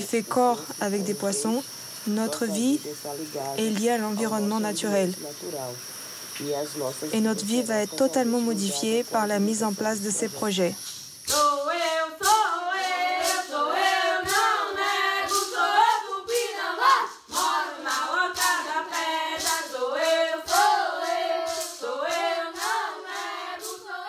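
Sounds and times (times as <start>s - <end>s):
steady drum beat: 11.2s - 24.0s
voices singing long bending notes: 11.3s - 24.0s.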